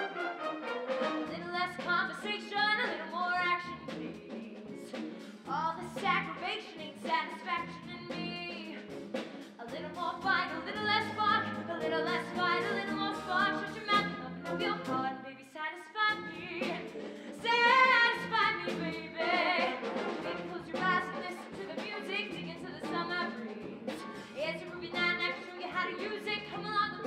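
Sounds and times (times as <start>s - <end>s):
musical theatre singing: 0.0s - 15.4s, 16.1s - 27.0s.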